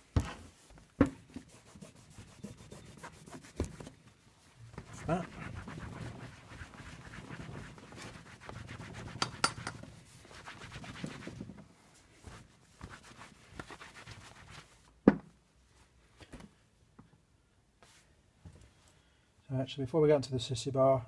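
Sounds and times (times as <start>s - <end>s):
cloth rubbing on padded seat: 0.0s - 9.3s, 9.9s - 14.9s.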